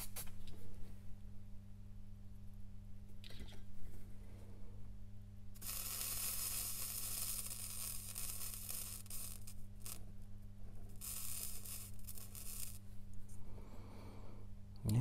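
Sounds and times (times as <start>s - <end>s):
steady low hum: 0.0s - 15.0s
flux sizzling under soldering iron: 5.6s - 10.1s, 10.9s - 12.9s.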